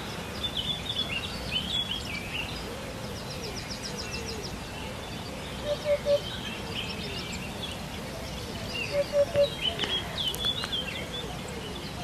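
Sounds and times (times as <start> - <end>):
small birds twittering: 0.0 - 12.0
hoopoe calling oop-oop-oop: 5.6 - 6.3, 8.0 - 10.4.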